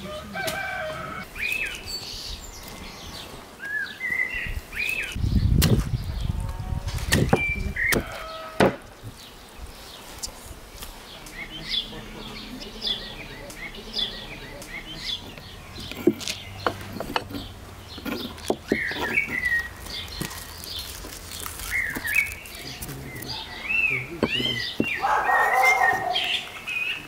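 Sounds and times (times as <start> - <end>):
small birds chirping: 0.0 - 27.0
sharp clicks and knocks: 15.2 - 19.5.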